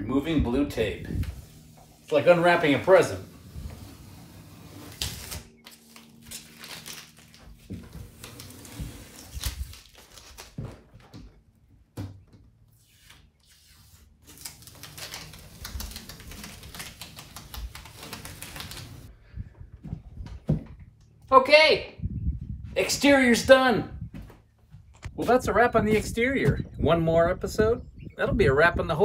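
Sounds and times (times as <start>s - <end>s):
tape peeling rips: 2.9s - 10.8s, 12.7s - 19.1s.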